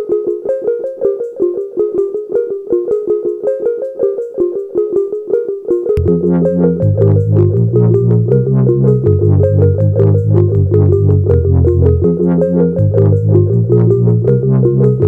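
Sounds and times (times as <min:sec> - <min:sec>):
plucked notes: 0:00.0 - 0:15.0
deep bass: 0:06.0 - 0:15.0
synthesizer chords: 0:06.0 - 0:15.0.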